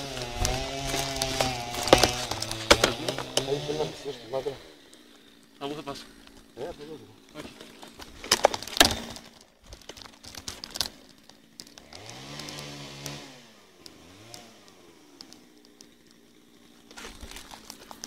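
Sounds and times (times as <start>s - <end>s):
sharp knocks and rustles: 0.0s - 3.6s, 7.3s - 13.2s
motor revving: 0.0s - 7.7s, 11.6s - 17.3s.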